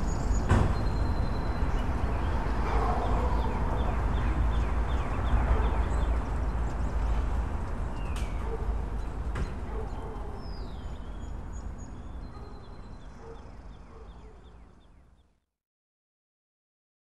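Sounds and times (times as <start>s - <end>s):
low traffic rumble: 0.0s - 14.9s.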